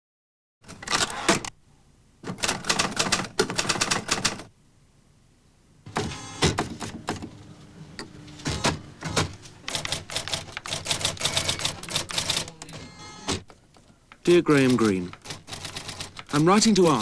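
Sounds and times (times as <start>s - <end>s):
manual typewriter typing: 2.3s - 4.5s, 8.5s - 13.5s, 14.3s - 17.0s.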